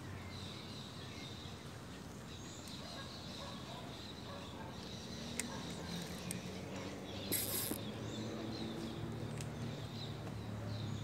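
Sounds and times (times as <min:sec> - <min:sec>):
fishing reel clicking: 0:07.3 - 0:07.8
short loud hiss: 0:07.3 - 0:07.8.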